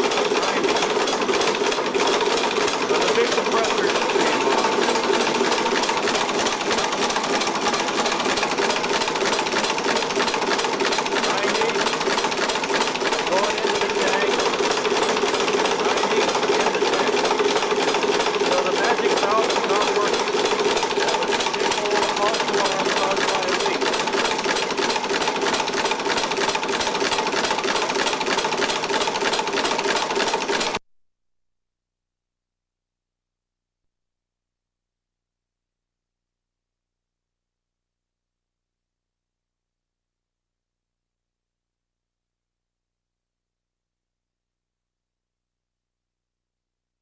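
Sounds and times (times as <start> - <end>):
compressed-air engine clattering: 0.1 - 30.7.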